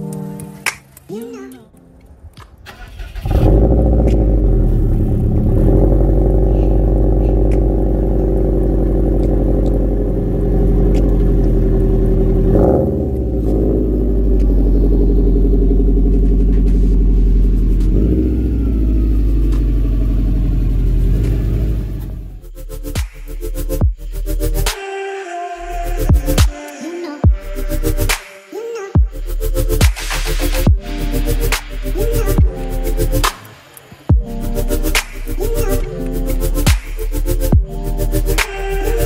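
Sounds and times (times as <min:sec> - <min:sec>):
car engine starting: 0:01.8 - 0:24.8, 0:29.2 - 0:39.0
exhaust burble: 0:02.4 - 0:22.6
engine revving: 0:02.4 - 0:24.8, 0:29.2 - 0:39.0.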